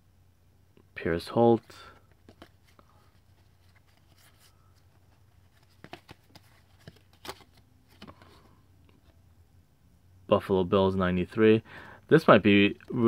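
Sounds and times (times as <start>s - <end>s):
cards flipping with soft clicks: 1.9s - 9.2s.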